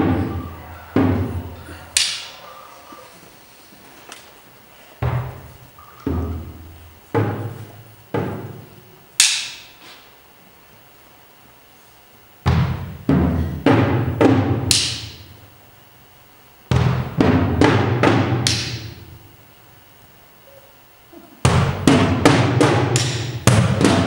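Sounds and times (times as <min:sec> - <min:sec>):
timpani and drum strokes: 0:00.0 - 0:03.0, 0:05.0 - 0:08.7, 0:21.4 - 0:24.0.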